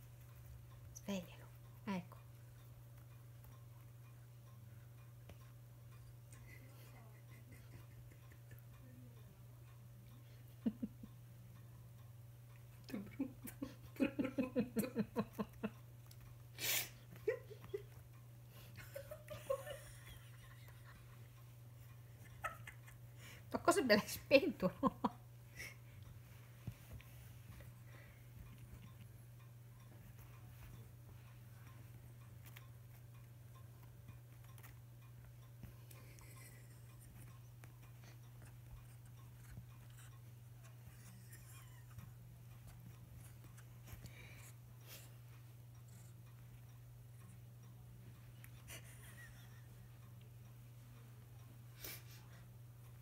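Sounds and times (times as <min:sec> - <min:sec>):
person giggling: 0:10.5 - 0:11.2, 0:12.9 - 0:15.8, 0:16.6 - 0:18.0, 0:18.8 - 0:21.0, 0:22.2 - 0:23.2, 0:40.9 - 0:42.1, 0:48.6 - 0:49.9.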